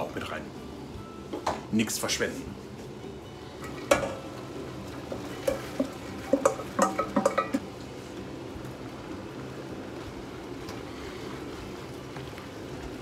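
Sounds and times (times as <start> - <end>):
meat frying sizzle: 0.0 - 13.0
metal bowl clinking against pot: 5.4 - 7.6.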